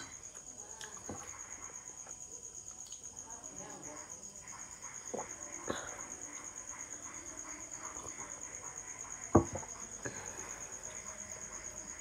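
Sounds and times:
cricket chirping: 0.0s - 12.0s
plastic cup knocks: 9.3s - 9.7s.

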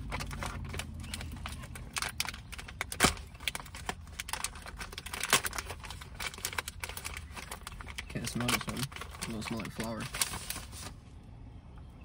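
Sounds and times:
packaging snaps: 0.0s - 10.5s
snack packaging crinkling: 0.0s - 10.9s.

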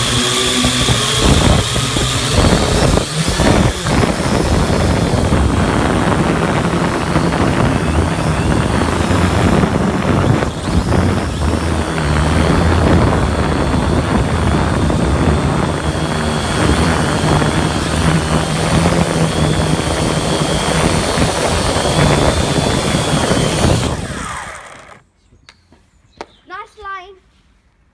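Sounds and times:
drone motors buzzing: 0.0s - 25.0s.

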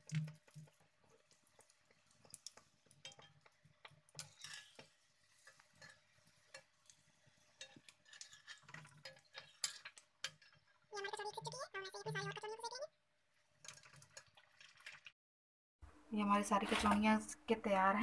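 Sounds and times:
food deep-frying in oil: 0.0s - 15.2s
metal spoon scraping pan: 1.2s - 10.9s.

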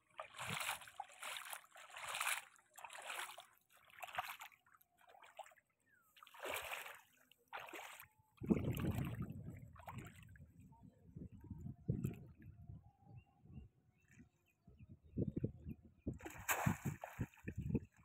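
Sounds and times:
feet sloshing through water: 0.0s - 10.3s, 16.2s - 17.6s.

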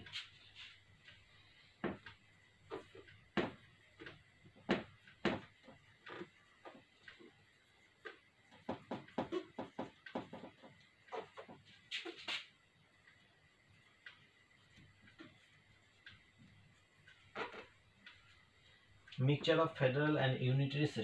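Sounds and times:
marker writing on whiteboard: 0.0s - 0.8s, 1.8s - 6.9s, 8.0s - 12.6s.

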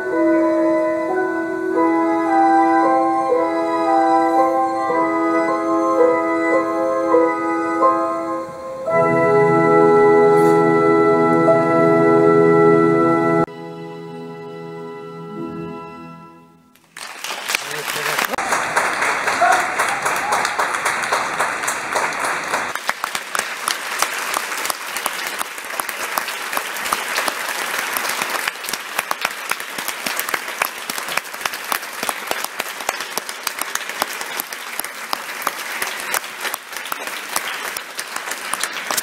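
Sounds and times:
audience applauding: 16.8s - 39.0s.

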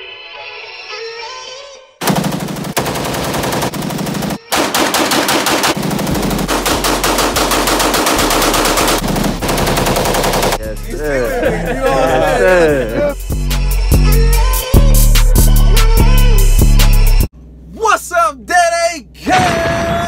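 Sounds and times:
pistol shots: 4.4s - 10.6s.

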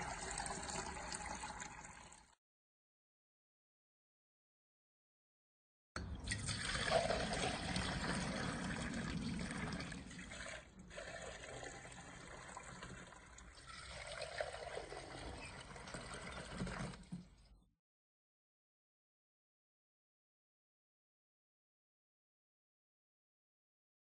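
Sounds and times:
water gushing into plastic jug: 0.0s - 2.4s, 6.2s - 17.5s.

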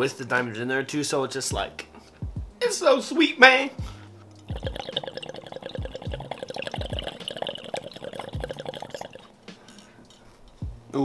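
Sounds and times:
water bubbling in glass pipe: 4.4s - 9.3s.

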